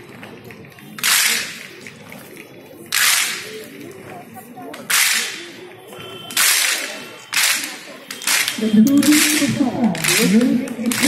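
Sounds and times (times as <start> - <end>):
voices: 0.0 - 11.0
group clapping in unison: 0.9 - 2.1, 2.9 - 3.8, 6.3 - 11.0.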